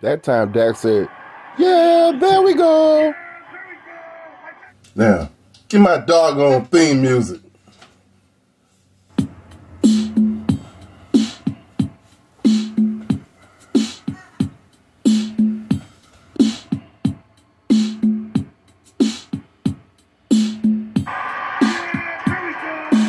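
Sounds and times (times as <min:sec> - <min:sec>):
hip-hop drum beat: 0:09.2 - 0:23.0.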